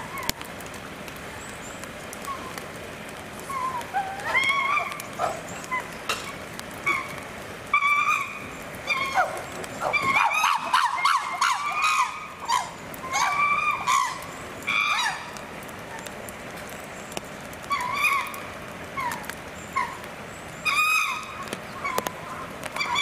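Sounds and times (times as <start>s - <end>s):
chimpanzees barking and screaming: 3.5s - 15.4s, 17.6s - 23.0s.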